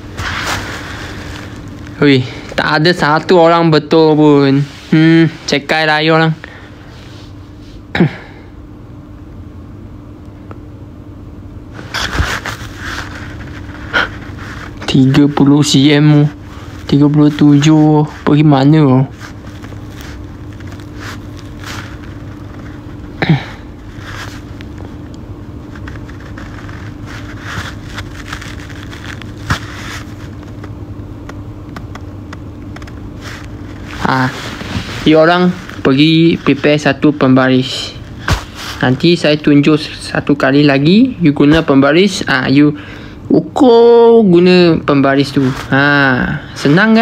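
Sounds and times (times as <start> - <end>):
low background hum: 0.0 - 47.0
brief rustling: 11.8 - 14.9, 25.6 - 30.8.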